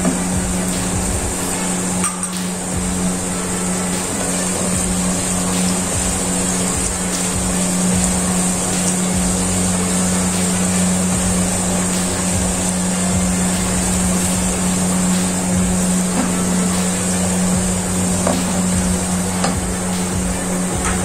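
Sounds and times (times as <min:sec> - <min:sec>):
steady low hum: 0:00.0 - 0:21.0
onions sizzling in hot oil: 0:00.1 - 0:20.7.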